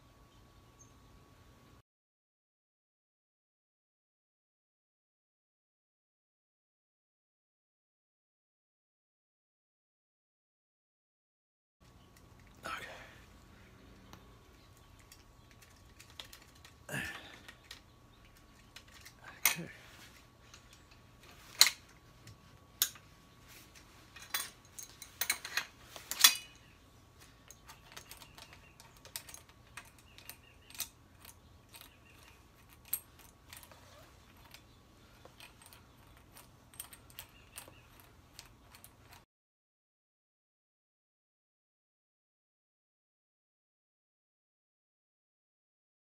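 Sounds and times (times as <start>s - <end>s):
wrench clinking on metal: 24.2s - 26.7s, 27.4s - 39.2s.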